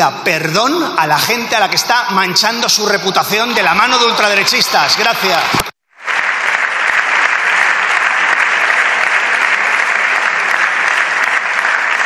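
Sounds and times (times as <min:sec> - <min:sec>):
crowd applauding: 0:03.6 - 0:12.0.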